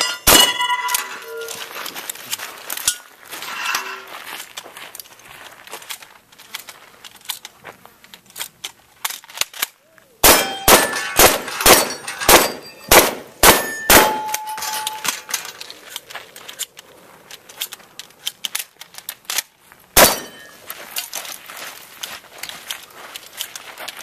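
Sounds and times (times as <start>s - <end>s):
steel targets ringing: 0.0s - 1.7s, 10.2s - 15.5s, 20.0s - 20.6s
shotgun fire: 10.2s - 14.3s, 20.0s - 20.4s
light clicks and rattles: 14.7s - 19.6s.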